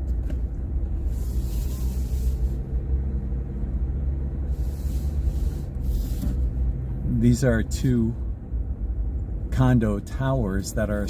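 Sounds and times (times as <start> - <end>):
car engine rumble: 0.0 - 11.0
road noise: 0.0 - 11.0
tyres hissing on wet pavement: 4.5 - 6.3.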